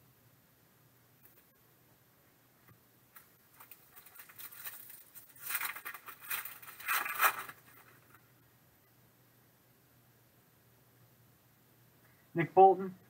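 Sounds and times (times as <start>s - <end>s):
foil wrapper crinkling and tearing: 3.1s - 8.2s.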